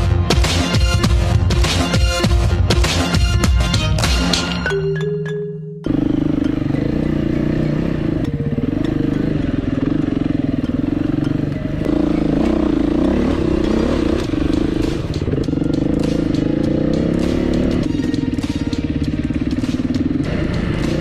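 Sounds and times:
motorcycle engine revving: 5.9s - 21.0s.

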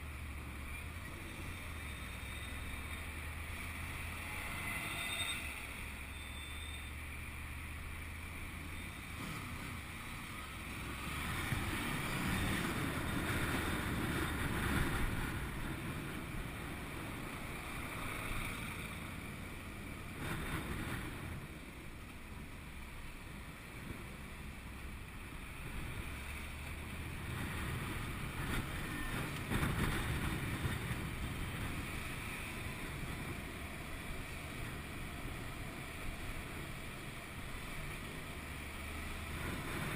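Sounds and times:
wind rushing over microphone: 10.8s - 22.0s, 25.3s - 39.9s.

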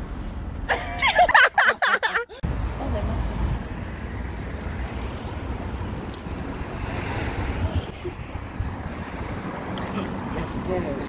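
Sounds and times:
wind buffeting microphone: 3.2s - 10.3s.

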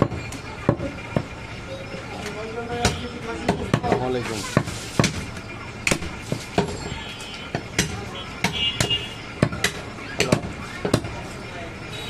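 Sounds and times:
knife chopping meat on wood: 4.6s - 5.2s.

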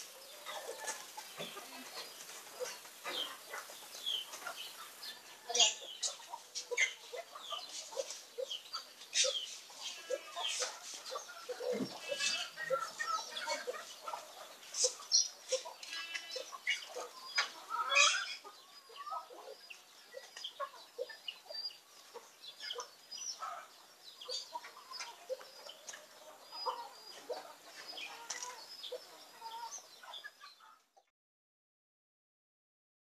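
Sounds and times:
birds chirping and clucking: 0.0s - 31.1s.

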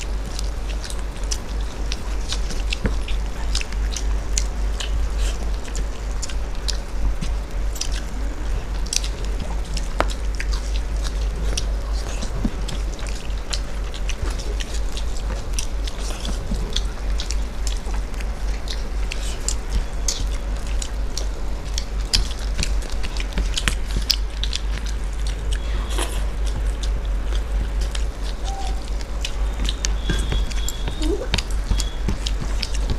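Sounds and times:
chewing and wet mouth clicks: 0.0s - 32.9s
fingers mixing rice on plates: 0.0s - 32.9s
steady low hum: 0.0s - 32.9s.

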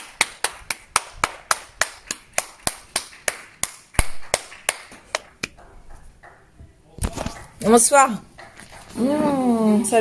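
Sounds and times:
hands clapping: 0.0s - 6.4s.

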